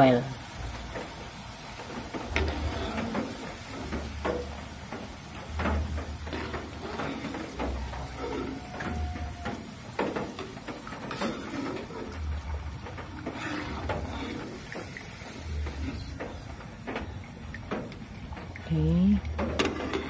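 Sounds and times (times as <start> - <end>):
oil sizzling: 0.0 - 20.0
metal spatula scraping a wok: 2.1 - 16.6, 19.4 - 20.0.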